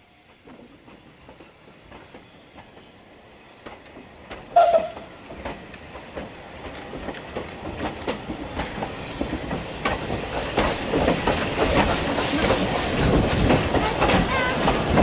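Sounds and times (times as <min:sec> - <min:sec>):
train coaches rumbling past: 0:00.0 - 0:15.0
wheels clacking over rail joints: 0:03.6 - 0:15.0.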